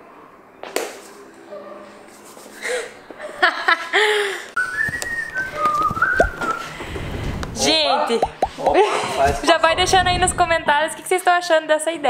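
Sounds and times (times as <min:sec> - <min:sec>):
person whistling a tune: 0:04.6 - 0:06.8.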